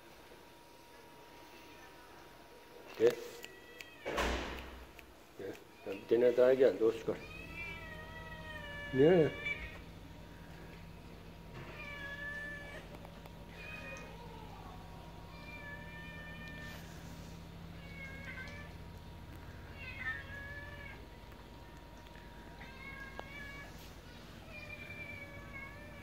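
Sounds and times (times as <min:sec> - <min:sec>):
cat meowing: 0:03.4 - 0:04.3, 0:07.0 - 0:09.9, 0:11.6 - 0:16.9, 0:17.8 - 0:18.8, 0:19.6 - 0:21.1, 0:22.5 - 0:26.0.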